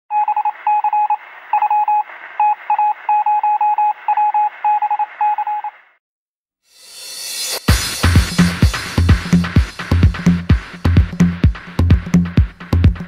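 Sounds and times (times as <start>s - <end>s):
morse code beeping: 0.1s - 5.8s.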